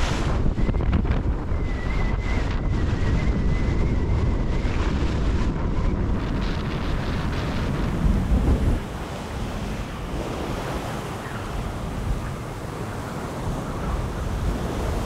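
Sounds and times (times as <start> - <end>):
waves rushing along hull: 0.0 - 15.0
wind buffeting microphone: 0.0 - 15.0
high wavering whistle: 0.4 - 4.8.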